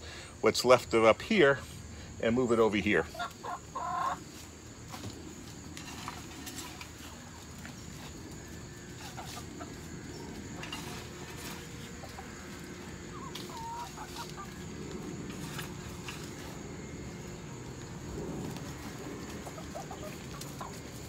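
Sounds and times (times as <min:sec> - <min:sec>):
hens clucking: 0:02.4 - 0:21.0
shovel scraping compost: 0:04.2 - 0:17.4.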